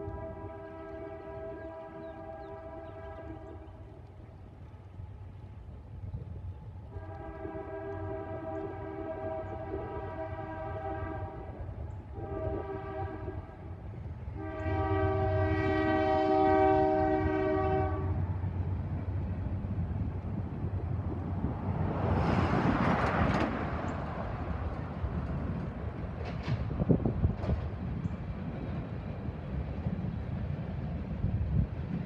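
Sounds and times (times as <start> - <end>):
train air horn blasts: 0.0 - 3.6, 6.9 - 18.4
diesel locomotive rumble: 0.0 - 32.0
rushing noise of passing train: 0.0 - 32.0.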